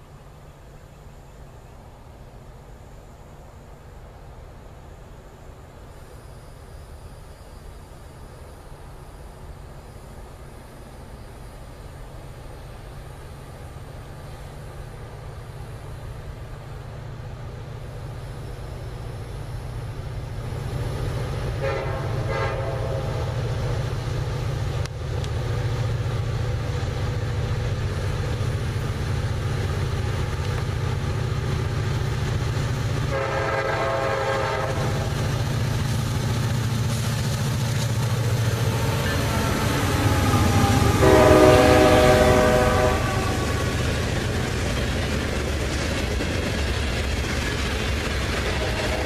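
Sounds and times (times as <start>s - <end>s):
diesel locomotive engine rumble: 0.0s - 49.0s
locomotive air horn blasts: 21.6s - 23.3s, 33.1s - 35.1s, 39.0s - 43.7s.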